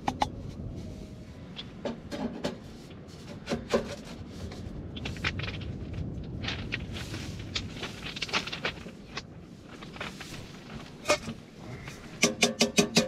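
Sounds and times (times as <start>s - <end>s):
steady low rumble: 0.0s - 12.2s
tent poles knocking and clinking: 1.6s - 13.0s
pebbles being handled: 2.5s - 12.2s.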